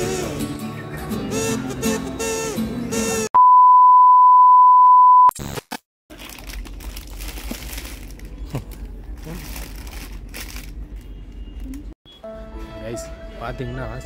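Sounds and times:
plastic wrappers rustling: 0:06.1 - 0:11.1
faint shop ambience: 0:06.2 - 0:14.0
background music: 0:12.2 - 0:14.0.

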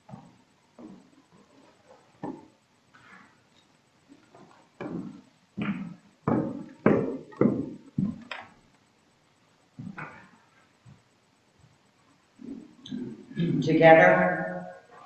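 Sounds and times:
footsteps on wooden stairs: 0:00.1 - 0:01.1, 0:04.3 - 0:08.4, 0:09.8 - 0:10.2.

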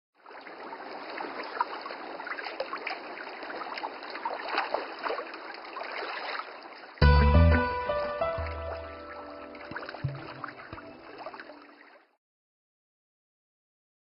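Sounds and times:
water lapping and splashing: 0:00.2 - 0:07.0, 0:09.1 - 0:12.2.

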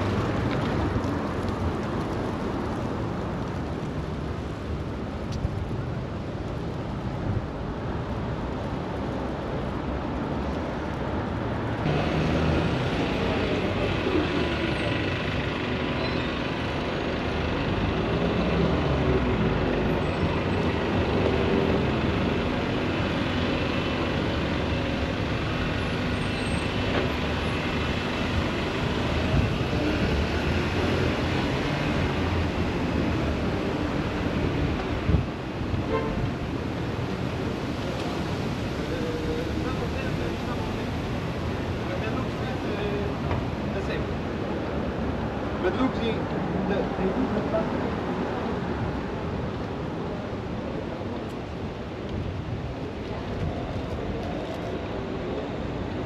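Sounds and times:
car and bus engines passing: 0:00.0 - 0:56.0.

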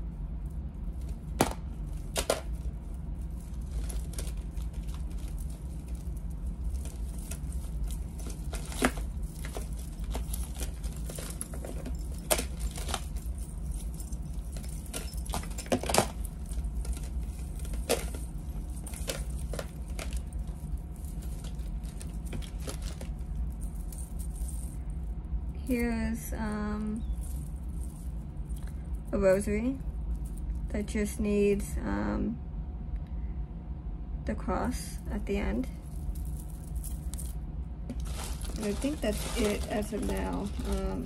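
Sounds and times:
metal chains clinking: 0:00.0 - 0:25.0, 0:26.6 - 0:29.1, 0:35.8 - 0:41.0
steady low hum: 0:00.0 - 0:41.0.

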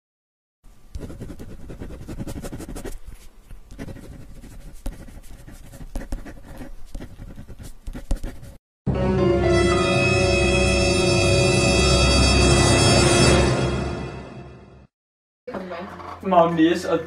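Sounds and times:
pen scratching on paper: 0:00.9 - 0:08.6.

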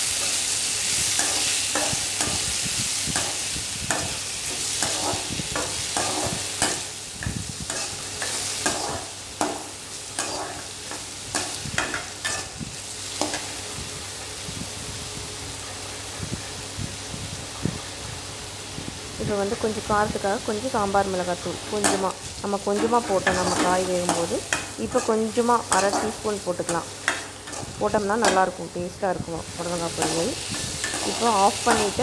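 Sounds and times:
vegetables sizzling in oil: 0:00.0 - 0:32.0.

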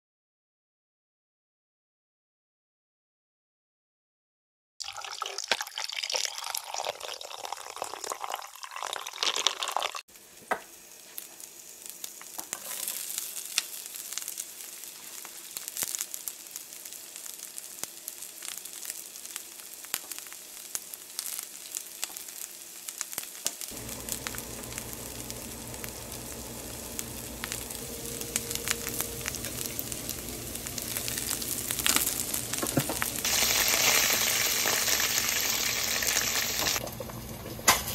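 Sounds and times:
liquid pouring and clinking: 0:04.8 - 0:10.0
oil sizzling and crackling in a pan: 0:09.9 - 0:37.9
low steady hum: 0:23.7 - 0:33.4.

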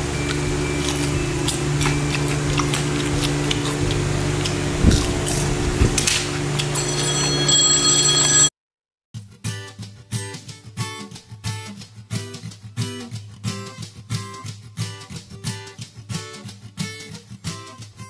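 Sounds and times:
high ringing tone: 0:00.0 - 0:03.5, 0:06.6 - 0:08.5
acoustic guitar music: 0:00.0 - 0:07.6, 0:09.2 - 0:18.0
low electrical hum: 0:00.0 - 0:08.5.

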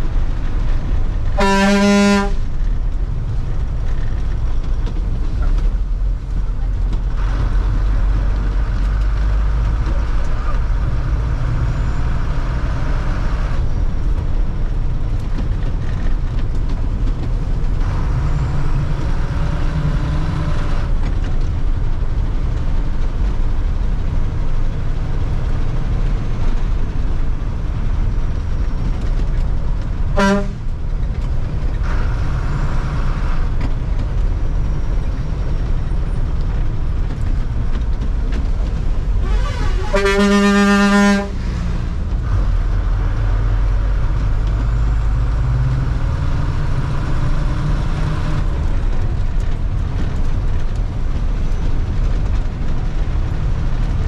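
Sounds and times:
bus engine and road noise: 0:00.0 - 0:54.0
horn toot: 0:01.4 - 0:02.4, 0:30.2 - 0:30.6, 0:39.2 - 0:41.4.

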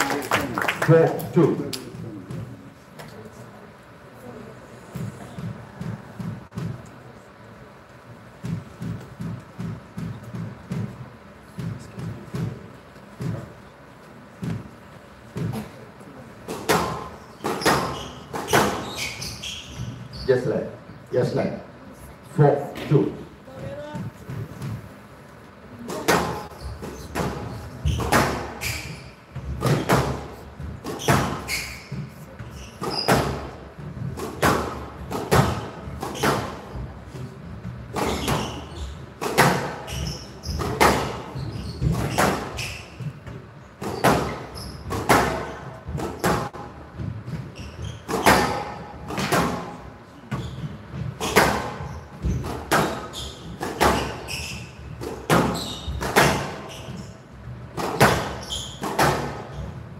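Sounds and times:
echoes in a hall: 0:00.0 - 0:20.0
squash ball hitting rackets and walls: 0:05.0 - 0:06.8, 0:08.4 - 0:13.6, 0:14.4 - 0:15.7, 0:16.4 - 0:20.1, 0:24.0 - 0:24.9, 0:25.8 - 0:59.8.

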